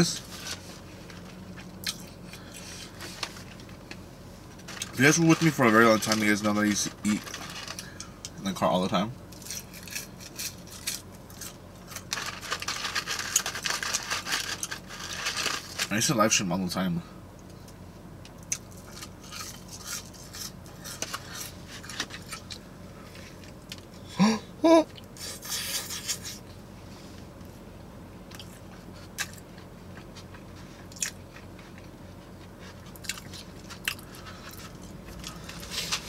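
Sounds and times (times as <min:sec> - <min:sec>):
chewing crunchy food: 0:00.5 - 0:03.7, 0:18.4 - 0:23.9, 0:28.3 - 0:36.0.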